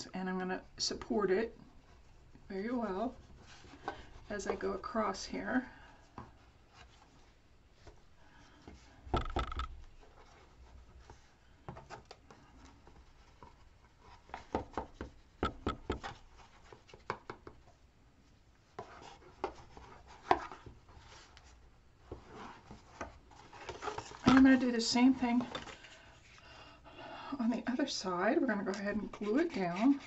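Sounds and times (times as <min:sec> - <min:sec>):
taps and knocks on box: 0:14.5 - 0:16.1.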